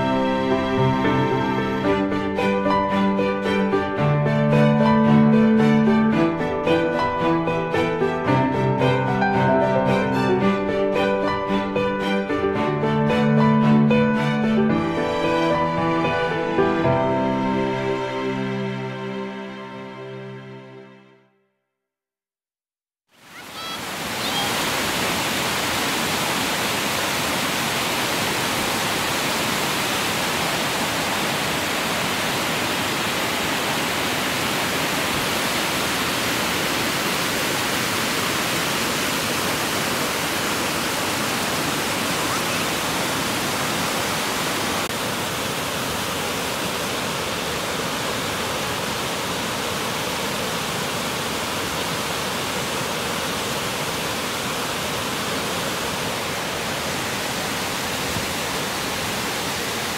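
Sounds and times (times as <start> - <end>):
river rushing over rapids: 23.1 - 59.9.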